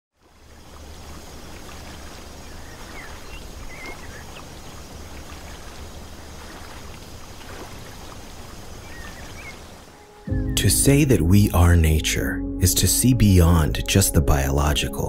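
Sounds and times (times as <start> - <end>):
wash of water: 0.1 - 10.0
bird chirps: 2.4 - 5.0, 8.0 - 10.8.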